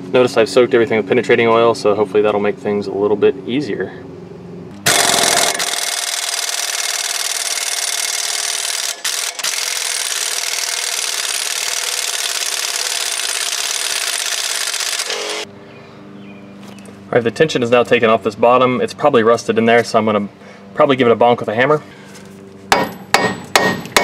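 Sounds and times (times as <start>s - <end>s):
impact wrench hammering: 4.8s - 15.5s, 22.7s - 24.0s.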